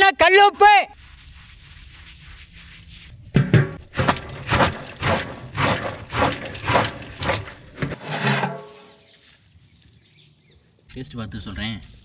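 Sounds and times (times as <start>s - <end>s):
metal lid scraping and ringing: 3.4s - 9.0s
popcorn rattling in shaken pot: 3.8s - 7.7s.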